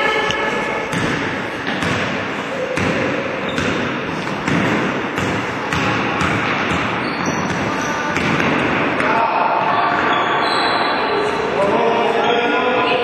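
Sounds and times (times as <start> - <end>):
steady background noise: 0.0 - 13.0
basketball bouncing on wooden floor: 0.9 - 9.1.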